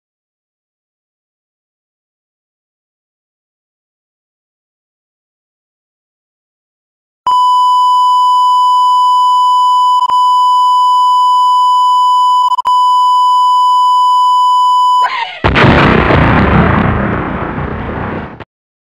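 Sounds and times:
continuous electronic beep: 7.3s - 15.1s.

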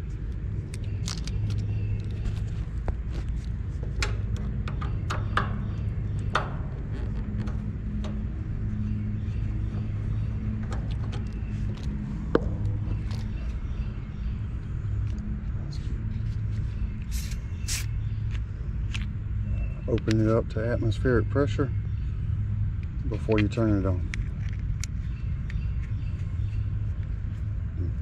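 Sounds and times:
air conditioner unit humming: 0.0s - 24.0s
light clicks of hoses handled: 19.9s - 20.4s.

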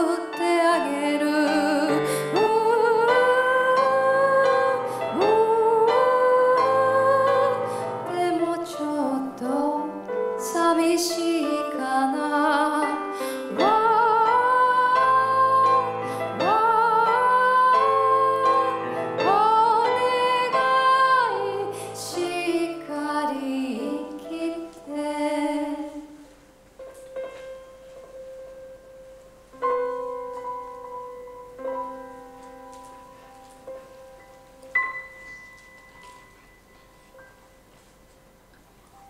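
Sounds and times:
woman singing a ballad: 0.0s - 26.2s
soft instrumental accompaniment: 0.0s - 39.0s.

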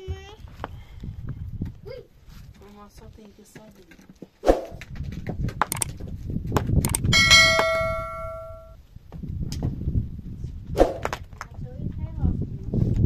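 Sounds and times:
metallic clang: 6.9s - 8.8s.

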